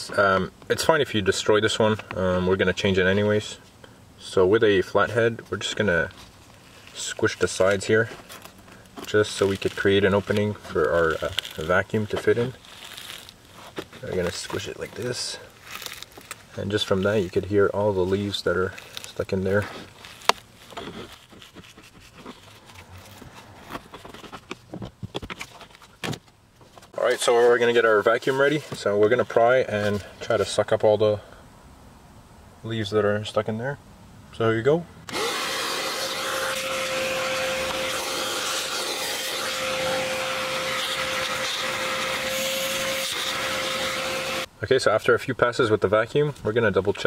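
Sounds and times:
dry leaves crackling in filter: 6.1 - 24.1
vacuum cleaner running: 35.1 - 44.5.

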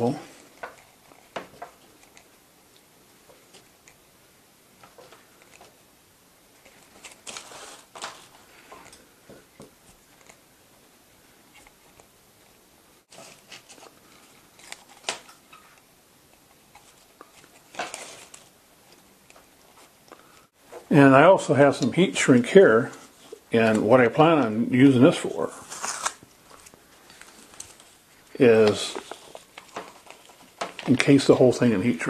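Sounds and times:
strip light crinkling: 6.5 - 10.5, 11.4 - 32.0.

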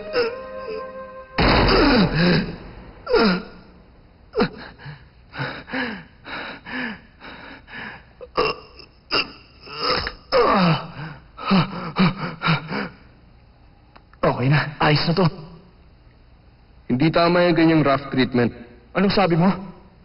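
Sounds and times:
man gasping and grunting in pain: 1.6 - 3.7.

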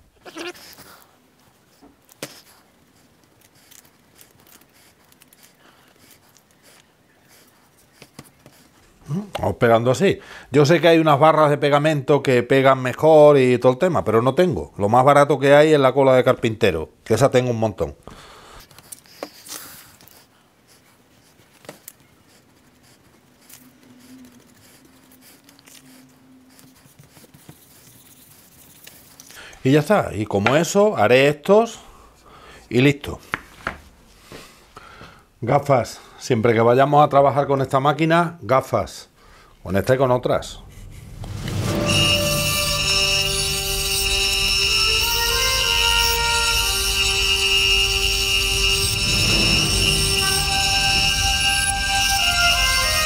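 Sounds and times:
paper rustling and rubbing: 1.6 - 8.8, 18.7 - 29.4.

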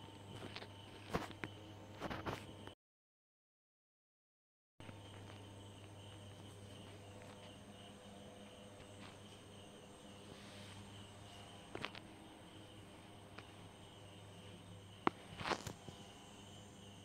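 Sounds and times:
pulsing insect chirping: 4.8 - 17.0.

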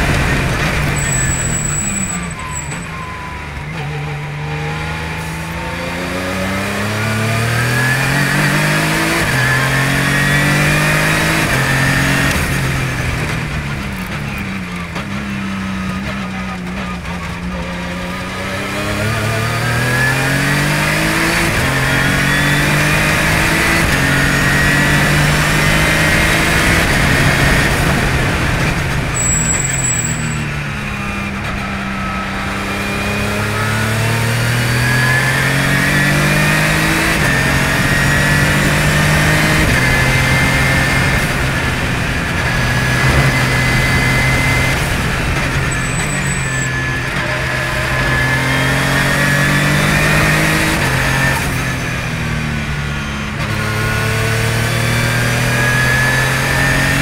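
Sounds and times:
race car engine accelerating: 0.0 - 57.0
high whistle: 29.2 - 30.4.

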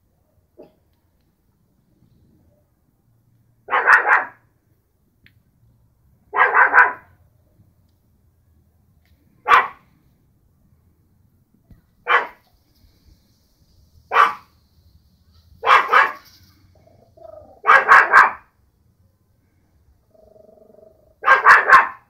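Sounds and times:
small dog barking: 3.7 - 4.4, 6.3 - 7.2, 9.4 - 9.8, 12.0 - 12.4, 14.1 - 14.5, 15.6 - 16.3, 17.1 - 18.5, 21.0 - 22.0.

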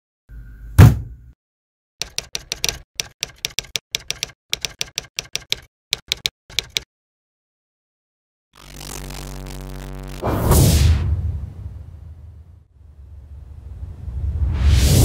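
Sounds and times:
typewriter keystroke clicks: 2.0 - 6.9.

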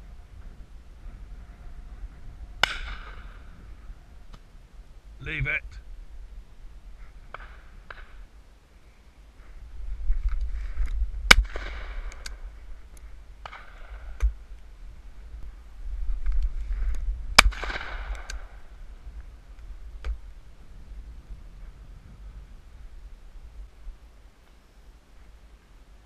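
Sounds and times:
wind rumble on microphone: 0.0 - 24.4
shotgun shots: 11.3 - 12.0, 17.4 - 18.4
distant gunshots: 11.3 - 12.2, 17.4 - 18.4.

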